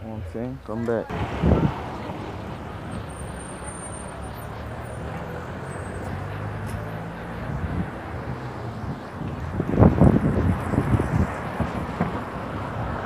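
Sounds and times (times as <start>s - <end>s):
traffic rumble: 0.0s - 13.0s
engine humming: 1.0s - 13.0s.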